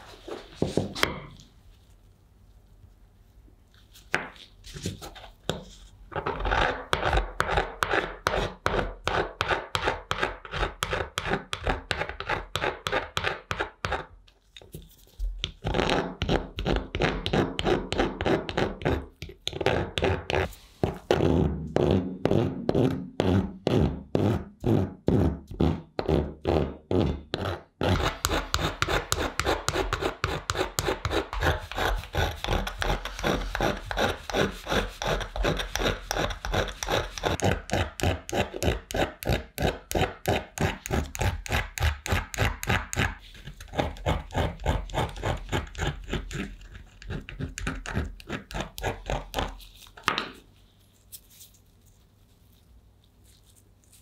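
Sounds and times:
hand file rasping on metal: 0:27.4 - 0:43.2.

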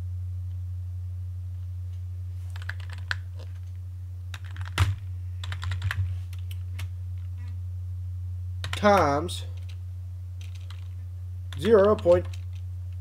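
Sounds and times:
steady low hum: 0:00.0 - 0:13.0
computer keyboard typing: 0:02.5 - 0:03.6, 0:04.3 - 0:06.6, 0:08.6 - 0:09.8, 0:10.4 - 0:12.6.

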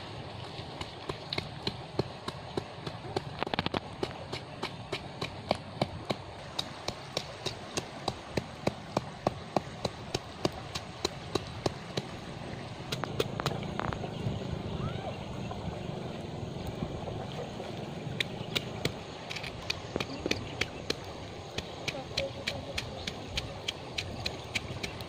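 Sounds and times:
pestle pounding in mortar: 0:19.9 - 0:25.0.

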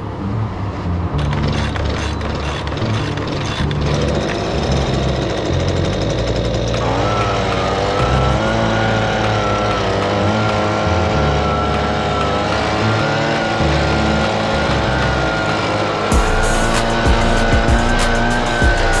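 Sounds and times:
leaf blower motor whining: 0:01.1 - 0:19.0.

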